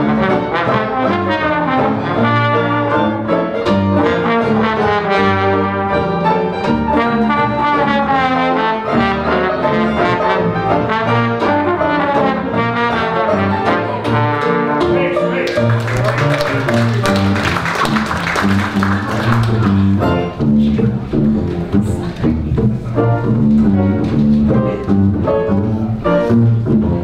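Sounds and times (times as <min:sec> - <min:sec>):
strummed banjo: 0:00.0 - 0:15.7, 0:19.3 - 0:27.0
trombone sliding notes: 0:00.0 - 0:21.4
jazz band playing: 0:00.0 - 0:27.0
walking string bass: 0:00.0 - 0:27.0.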